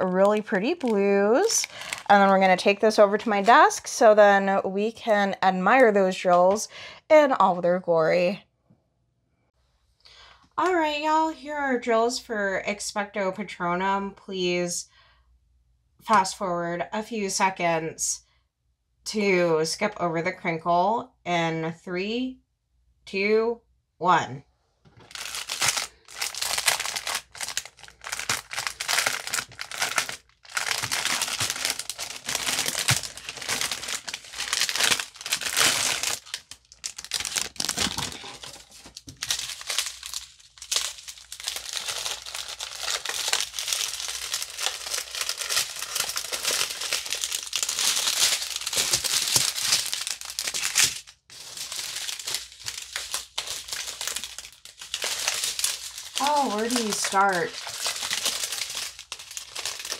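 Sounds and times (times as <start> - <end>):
plastic packaging crinkling: 0.0 - 4.2, 25.0 - 59.9.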